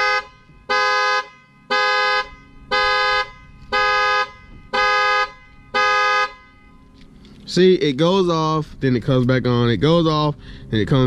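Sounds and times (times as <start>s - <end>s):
car horn alarm honks: 0.0s - 7.2s.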